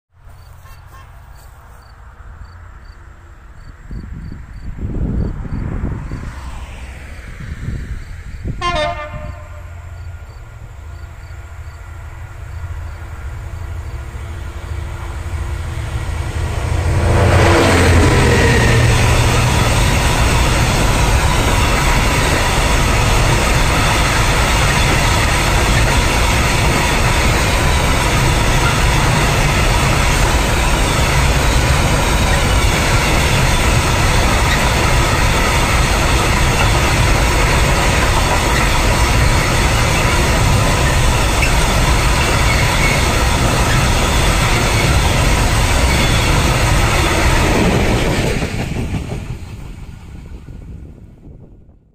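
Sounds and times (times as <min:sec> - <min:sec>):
diesel locomotive passing: 0:00.2 - 0:51.8
train horn blast: 0:00.5 - 0:01.5, 0:08.5 - 0:10.0
wagons rumbling on rails: 0:03.2 - 0:51.6.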